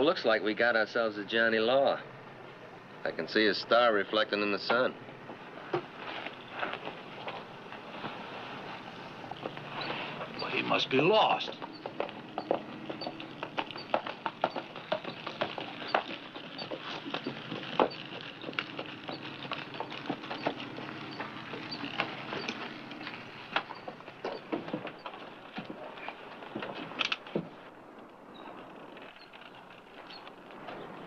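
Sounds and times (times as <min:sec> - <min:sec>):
horse hooves clopping: 0:04.7 - 0:31.0.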